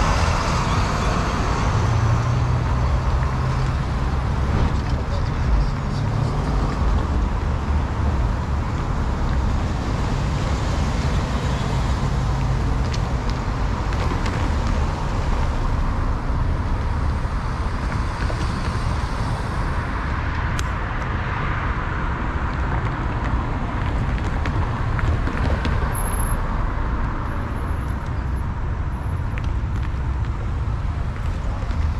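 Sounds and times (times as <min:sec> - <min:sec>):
cars crossing railroad crossing: 0:00.0 - 0:31.9
rumble of tyres and engines: 0:00.0 - 0:31.9.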